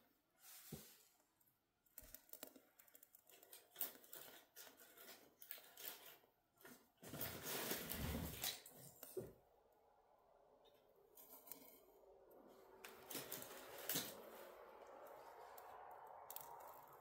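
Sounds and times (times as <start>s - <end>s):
kindling crackling: 10.7s - 17.0s
sticks rustling: 11.1s - 17.0s
rushing noise: 12.3s - 17.0s.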